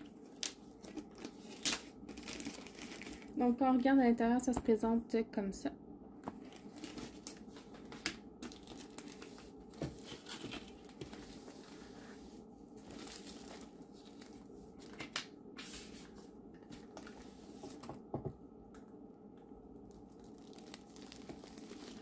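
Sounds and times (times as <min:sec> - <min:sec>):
packaging crinkling: 0:00.2 - 0:03.4, 0:06.4 - 0:11.2, 0:12.9 - 0:15.1, 0:19.8 - 0:22.0.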